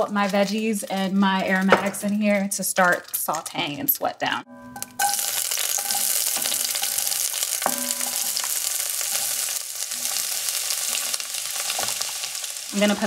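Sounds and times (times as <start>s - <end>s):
vegetables sizzling in hot oil: 5.0s - 13.0s.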